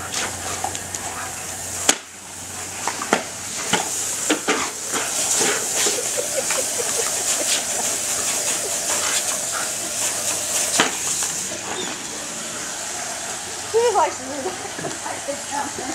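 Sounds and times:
sprinkler spraying water: 0.0 - 15.9.

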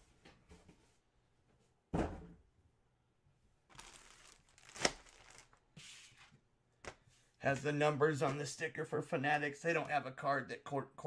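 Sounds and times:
thump: 1.9 - 2.4
plastic packaging crinkling: 3.7 - 5.7.

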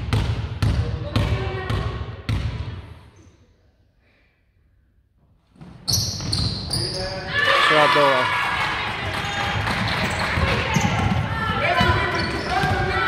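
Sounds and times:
basketball bouncing on wooden floor: 0.0 - 2.8, 8.9 - 13.0.

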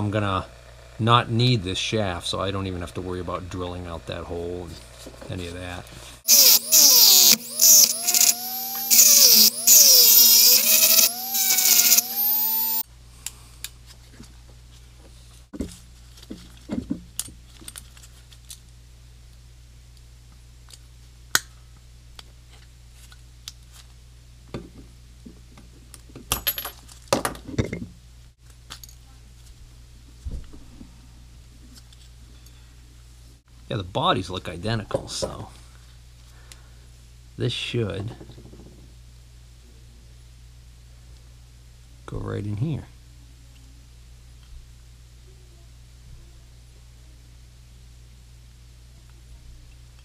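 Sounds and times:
rotary tool grinding whine: 3.7 - 12.8.

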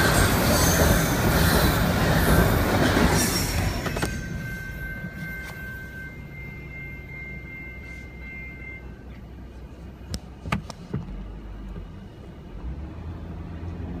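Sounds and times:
high steady ringing tone: 0.0 - 10.1.

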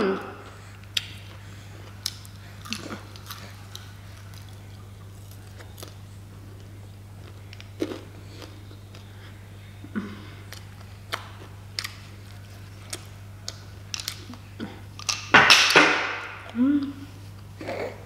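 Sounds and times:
steady low hum: 0.0 - 18.0
person chewing: 0.5 - 9.4, 10.2 - 15.1.

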